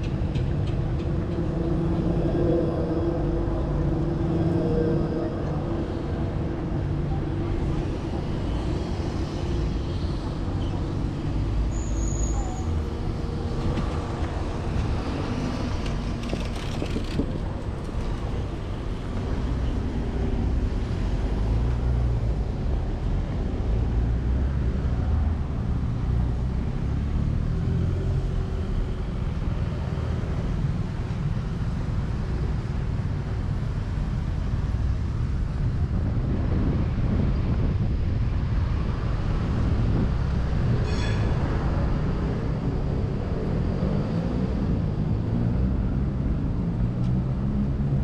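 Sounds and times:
cars and motorbikes passing: 0:00.0 - 0:48.0
low traffic rumble: 0:00.0 - 0:48.0.

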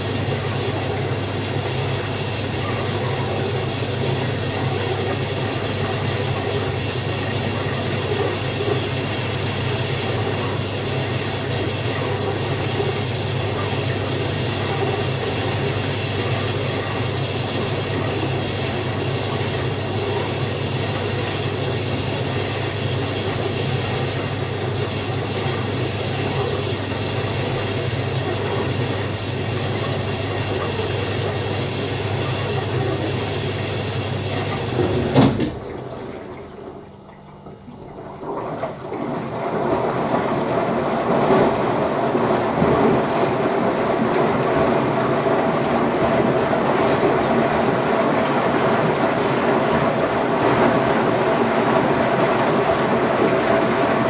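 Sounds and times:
water flowing into washer drum: 0:00.0 - 0:54.0
washer click: 0:34.0 - 0:36.2
wet laundry sloshing and tumbling: 0:34.4 - 0:54.0.

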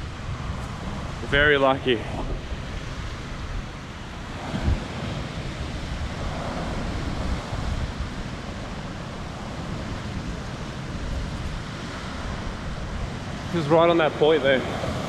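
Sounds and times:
ocean swell washing over rocks: 0:00.0 - 0:15.0
wind buffeting microphone: 0:00.0 - 0:15.0.

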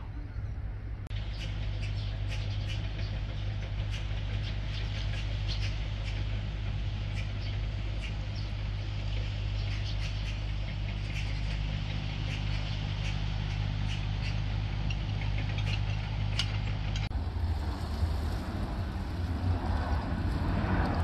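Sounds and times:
engine hum: 0:00.0 - 0:21.0
wind on microphone: 0:17.1 - 0:21.0.

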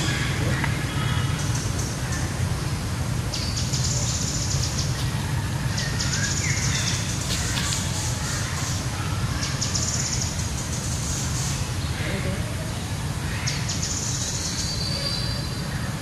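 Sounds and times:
steady low rumble: 0:00.0 - 0:09.4.

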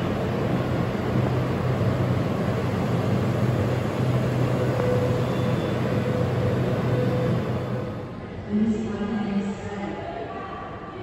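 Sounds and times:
vehicle rumbling: 0:00.0 - 0:08.2
faint high whine: 0:00.0 - 0:08.3.

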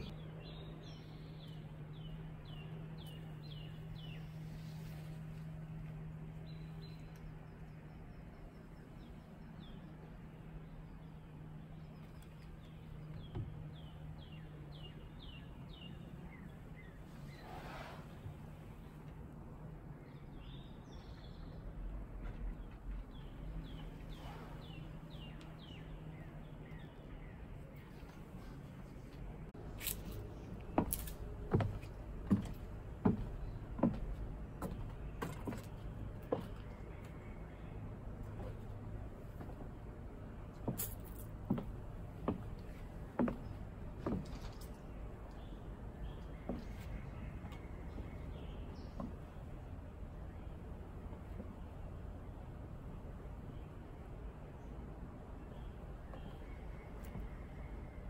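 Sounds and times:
high heels on wooden boards: 0:30.7 - 0:36.7, 0:40.6 - 0:44.5.

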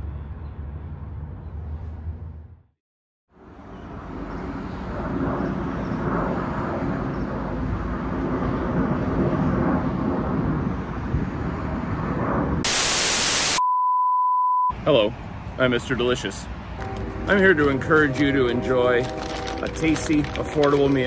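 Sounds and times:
static hiss: 0:12.7 - 0:13.6.

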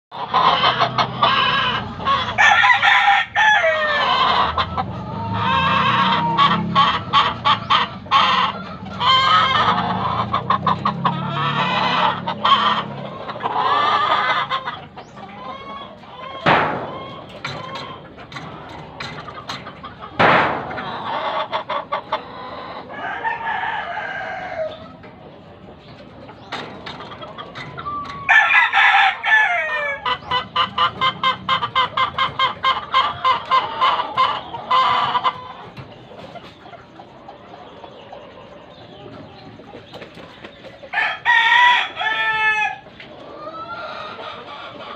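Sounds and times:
roosters clucking: 0:00.1 - 0:44.9
roosters crowing: 0:00.1 - 0:44.9.

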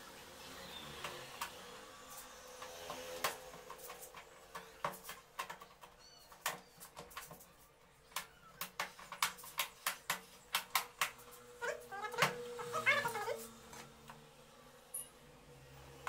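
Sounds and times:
hands clicking and tapping panel: 0:08.1 - 0:11.2.

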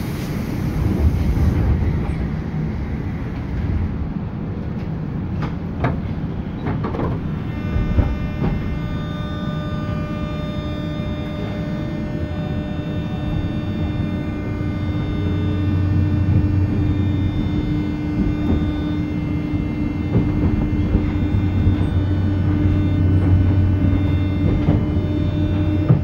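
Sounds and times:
train wheels and motors rumbling: 0:00.0 - 0:26.0
electric train motor whine: 0:07.0 - 0:26.0
train wheel squeals: 0:14.9 - 0:26.0.

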